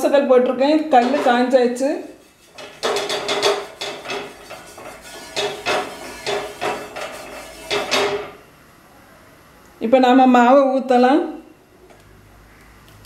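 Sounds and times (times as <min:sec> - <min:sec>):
brush scraping hot griddle: 0:02.0 - 0:08.4.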